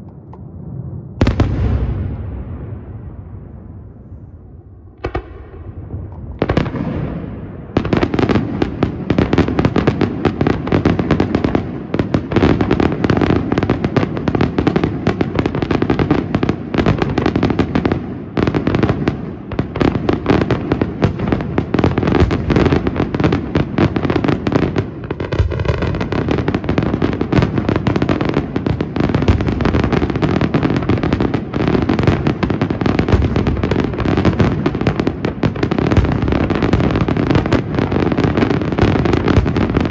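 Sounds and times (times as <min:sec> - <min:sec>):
fireworks bursts and crackling: 0:01.2 - 0:03.0, 0:05.0 - 0:39.9.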